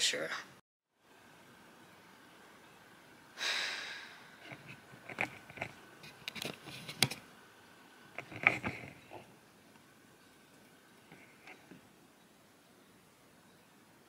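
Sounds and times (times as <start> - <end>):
short breath out: 3.4 - 4.3.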